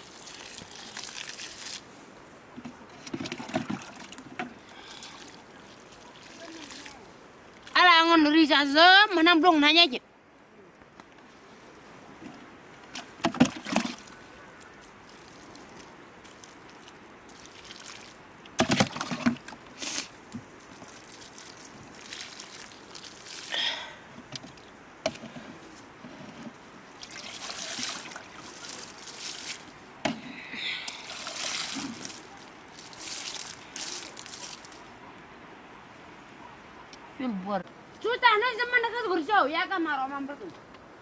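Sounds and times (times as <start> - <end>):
water splashing in bucket: 0.0 - 1.9, 2.7 - 7.0, 12.9 - 23.7, 27.0 - 29.7, 30.9 - 34.8
water trickling onto soil: 0.0 - 2.8, 3.7 - 8.0, 12.7 - 24.8, 26.6 - 35.0.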